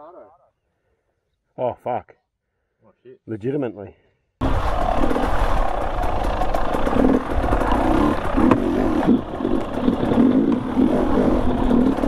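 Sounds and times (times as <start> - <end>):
dirt bike engine running: 4.4 - 12.0.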